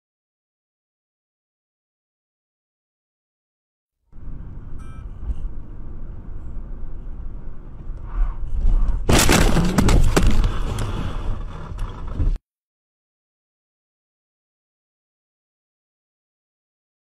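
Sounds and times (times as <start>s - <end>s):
road rumble: 4.1s - 12.4s
car crash: 8.1s - 12.4s.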